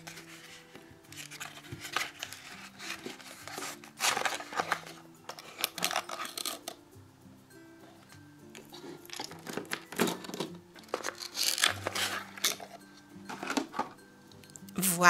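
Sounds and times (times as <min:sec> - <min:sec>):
cardboard box rustling and scraping: 0:00.0 - 0:05.7, 0:08.8 - 0:14.0.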